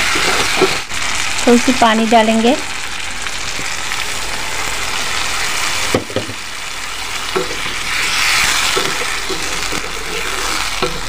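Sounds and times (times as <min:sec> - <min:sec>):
curry sizzling in a wok: 0:00.0 - 0:11.0
spatula stirring: 0:07.0 - 0:11.0.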